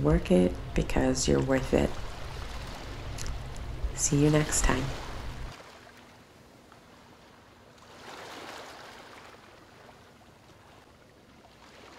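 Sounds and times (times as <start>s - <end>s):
ocean surf washing: 0.0s - 5.9s
wave breaking: 0.5s - 6.0s.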